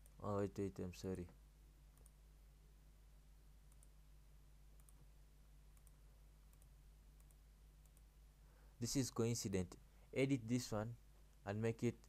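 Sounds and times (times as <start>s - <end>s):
low steady hum: 0.0s - 12.0s
computer mouse clicks: 1.9s - 2.2s, 3.7s - 4.0s, 4.8s - 5.1s, 5.7s - 8.1s.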